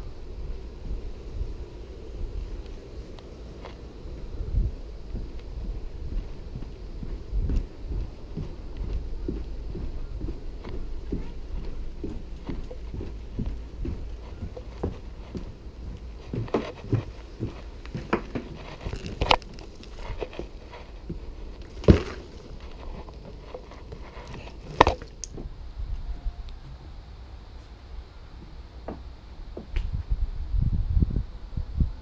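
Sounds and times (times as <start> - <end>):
steady low rumble: 0.0 - 32.0
footsteps and knocks on wooden dock: 4.2 - 25.6.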